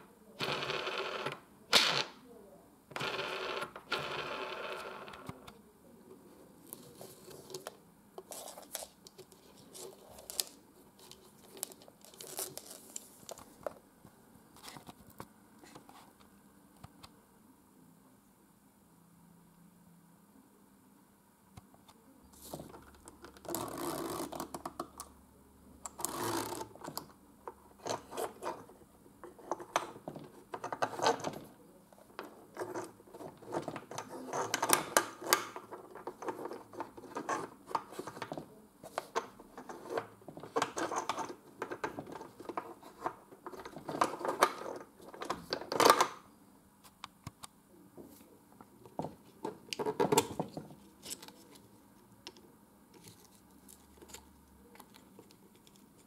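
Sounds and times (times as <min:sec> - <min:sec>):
wooden discs scraping and clicking: 0:27.7 - 0:46.2.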